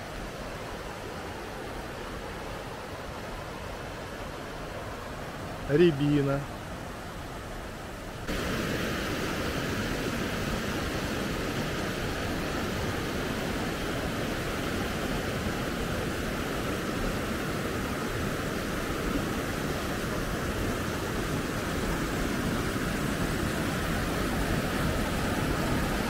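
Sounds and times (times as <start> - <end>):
waterfall pouring over rocks: 8.3 - 26.0.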